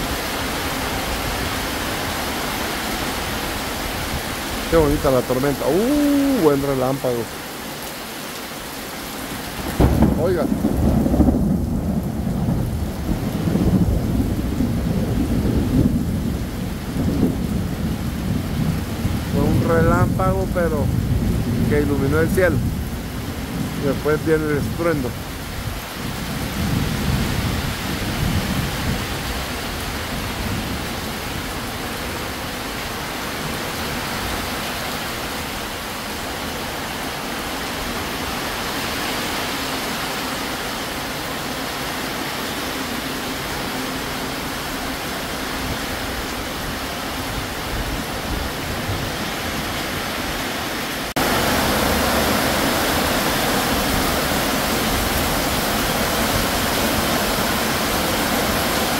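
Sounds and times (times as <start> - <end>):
heavy rain downpour: 0.0 - 58.9
low thunder rumble: 9.6 - 24.0, 24.6 - 31.8.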